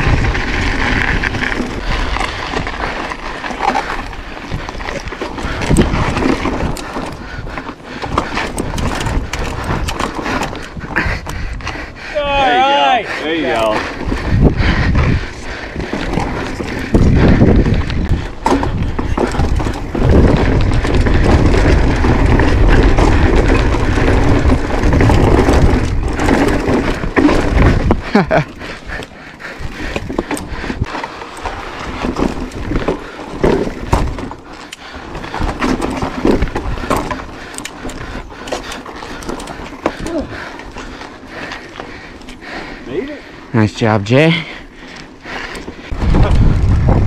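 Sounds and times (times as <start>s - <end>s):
wind on microphone: 0.0s - 3.1s, 13.6s - 31.0s, 45.6s - 47.0s
bike knocks and rattles: 0.0s - 11.4s, 15.8s - 28.8s, 29.5s - 42.1s
bike tyres rumbling on rock: 0.0s - 47.0s.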